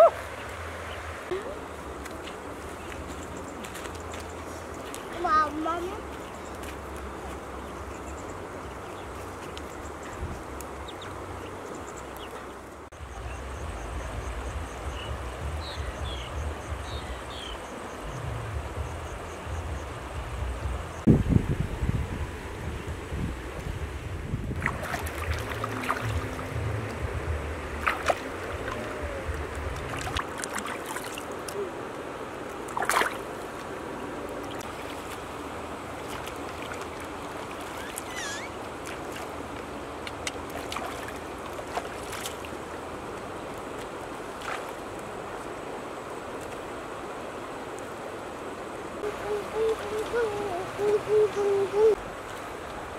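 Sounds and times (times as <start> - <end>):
shallow river flowing: 0.0 - 52.9
wind buffeting microphone: 13.0 - 30.3
water splashes: 24.4 - 52.9.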